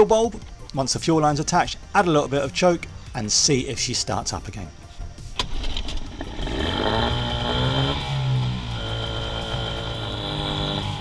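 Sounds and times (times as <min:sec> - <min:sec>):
outboard motor running: 0:05.5 - 0:11.0.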